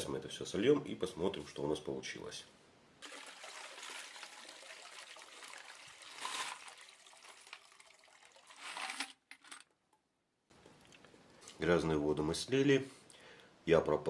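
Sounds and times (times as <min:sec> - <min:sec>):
soapy water pouring into bucket: 0:03.0 - 0:09.0.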